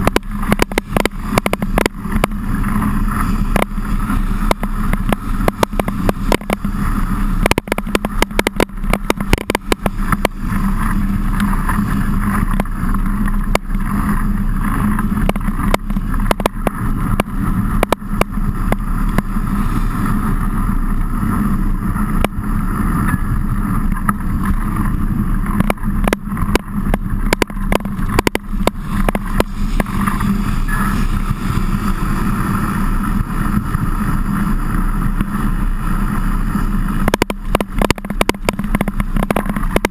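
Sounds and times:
sharp clicks and knocks: 0.0s - 2.8s, 3.5s - 3.8s, 4.4s - 6.7s, 7.4s - 19.3s, 23.8s - 30.3s, 37.0s - 39.9s
wind and rolling tyres rumble: 0.0s - 39.9s.

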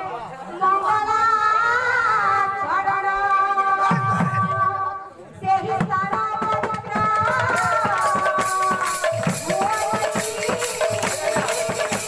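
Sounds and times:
jingling metal percussion: 7.1s - 12.0s.

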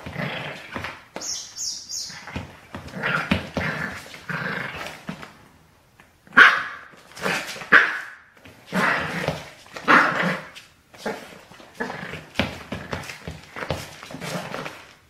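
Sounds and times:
puppy yapping and growling: 6.3s - 12.3s.

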